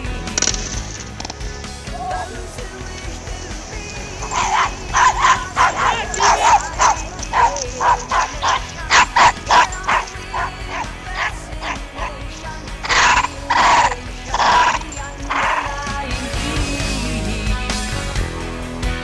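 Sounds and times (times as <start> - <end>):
background music: 0.0 - 19.0
dog barking: 3.7 - 15.8.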